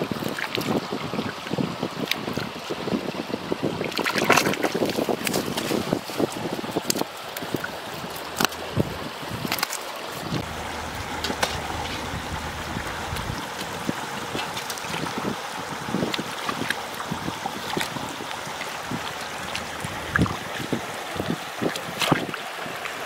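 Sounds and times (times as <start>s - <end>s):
running water: 0.0s - 23.0s
wind noise on microphone: 0.0s - 23.0s
hands squelching in wet mud: 16.0s - 20.8s.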